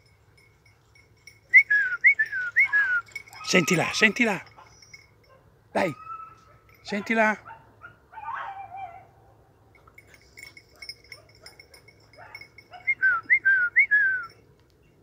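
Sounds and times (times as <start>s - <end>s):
person whistling: 1.5s - 3.2s, 12.9s - 14.3s.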